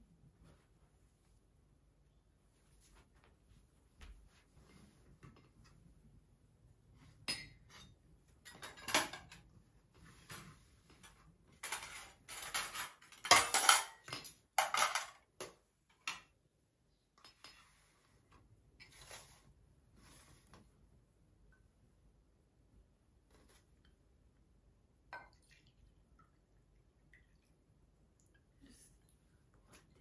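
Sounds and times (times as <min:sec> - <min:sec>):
cutlery and dishes clinking: 0:07.2 - 0:09.5, 0:11.0 - 0:16.3.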